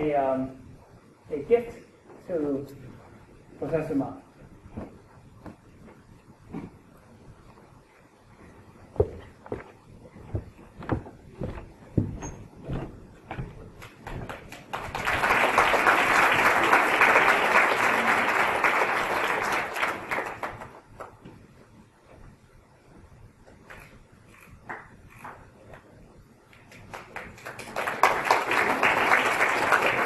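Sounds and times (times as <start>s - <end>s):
knocks and thumps: 8.9s - 14.5s
audience applauding: 13.8s - 21.2s, 26.6s - 30.0s.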